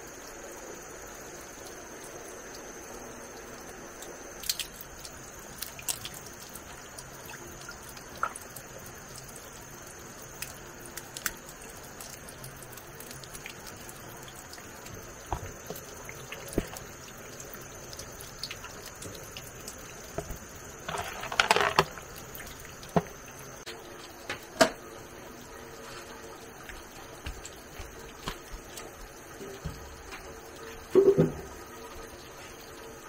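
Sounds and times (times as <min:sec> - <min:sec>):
water dripping and trickling: 0:00.0 - 0:33.0
rattling and splashing clatter: 0:20.2 - 0:22.3.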